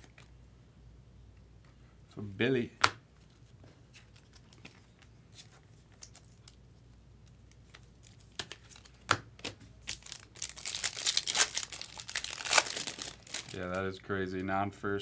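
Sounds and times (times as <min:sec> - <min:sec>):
foil pack tearing and crinkling: 0:09.9 - 0:13.6.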